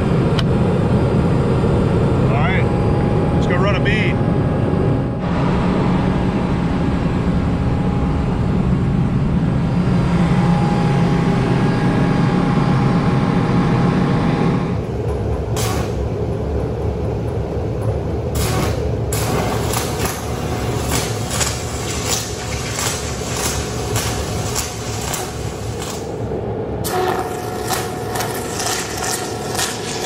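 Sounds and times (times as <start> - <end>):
diesel generator droning: 0.0 - 30.0.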